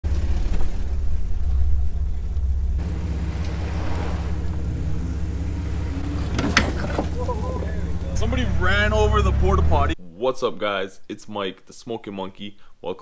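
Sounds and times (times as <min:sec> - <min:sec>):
vehicle engine rumbling: 0:00.0 - 0:10.0.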